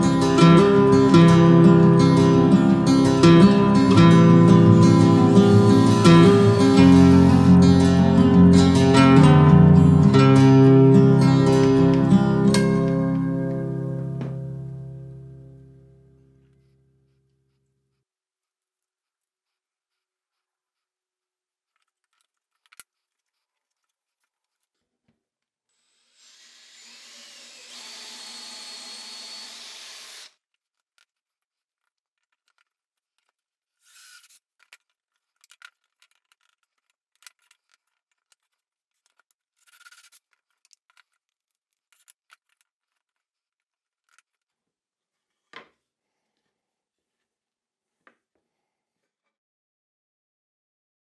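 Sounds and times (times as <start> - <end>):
cordless drill boring into wood: 25.7 - 30.4.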